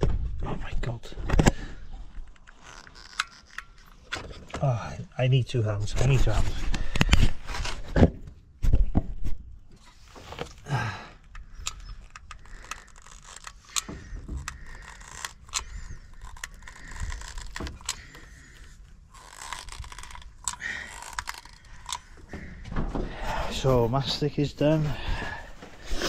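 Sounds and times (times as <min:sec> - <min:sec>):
caulking gun clicking: 0:11.2 - 0:22.2.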